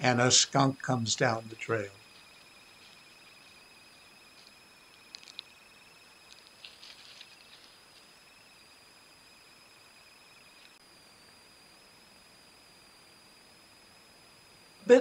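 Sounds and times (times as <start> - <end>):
crickets trilling: 0.0 - 15.0
fur brushing against camera: 6.6 - 7.8.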